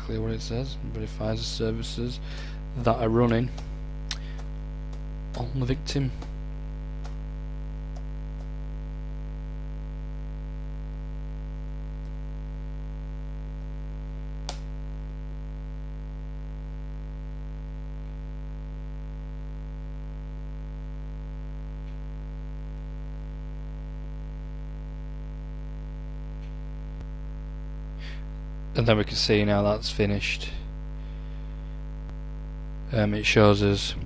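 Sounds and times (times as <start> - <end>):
buzzy mains hum: 0.0 - 34.0.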